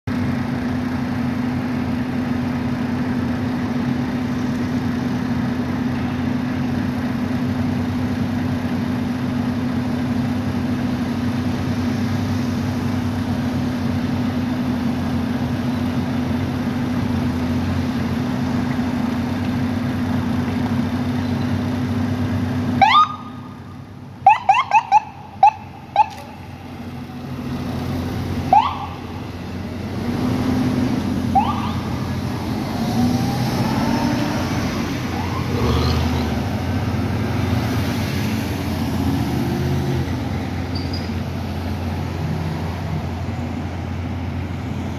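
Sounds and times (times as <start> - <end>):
ambulance siren chirps: 22.8 - 23.6, 24.2 - 26.4, 28.5 - 29.2, 31.3 - 36.4.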